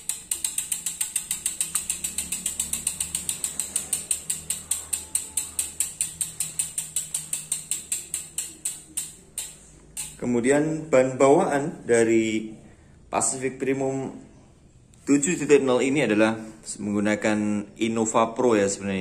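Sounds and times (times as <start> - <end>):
bike freehub ratchet clicking: 0.0 - 10.2.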